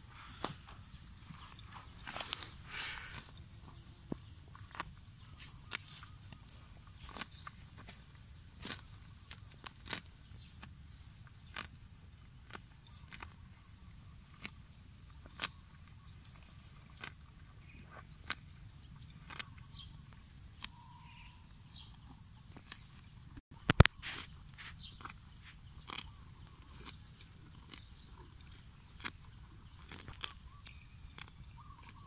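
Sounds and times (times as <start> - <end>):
cow tearing grass: 0.1 - 20.7, 23.8 - 32.0.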